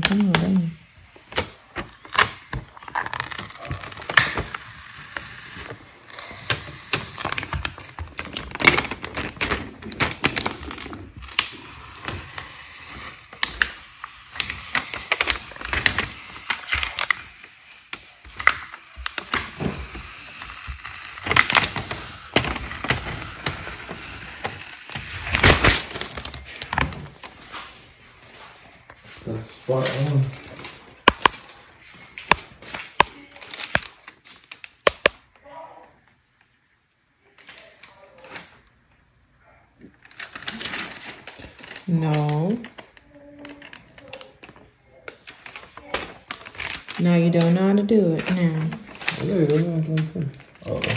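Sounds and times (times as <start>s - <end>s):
vinyl lettering peeling: 0.0s - 28.2s.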